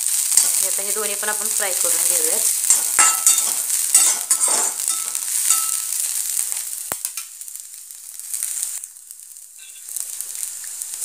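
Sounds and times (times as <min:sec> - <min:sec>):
vegetables sizzling in hot oil: 0:00.0 - 0:11.0
steel spatula scraping: 0:02.6 - 0:06.2, 0:09.6 - 0:10.0.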